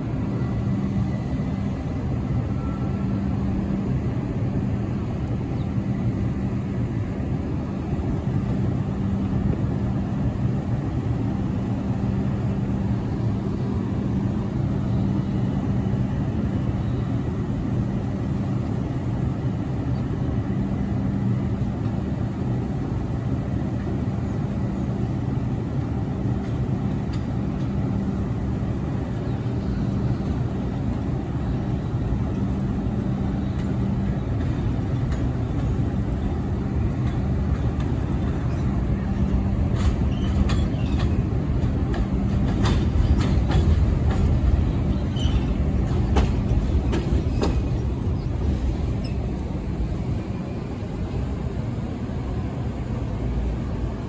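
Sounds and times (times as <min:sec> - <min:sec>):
subway train rumbling: 0:00.0 - 0:54.0
train wheels clicking: 0:20.6 - 0:50.2.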